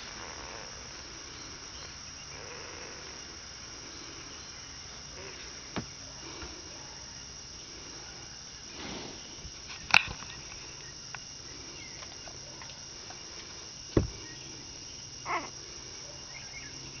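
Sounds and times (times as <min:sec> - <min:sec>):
steady background hiss: 0:00.0 - 0:17.0
low thump: 0:13.9 - 0:14.2.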